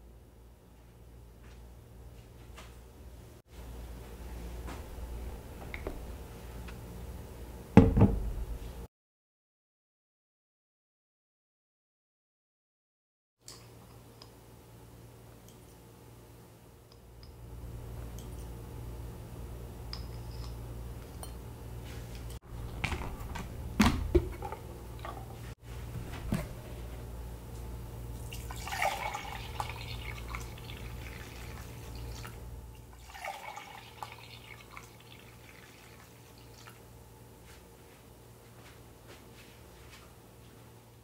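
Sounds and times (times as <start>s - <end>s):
steady low hum: 0.0s - 8.9s, 13.7s - 33.1s
glass knocking on wood: 7.8s - 8.4s
lemonade pouring into a jug: 28.1s - 36.8s.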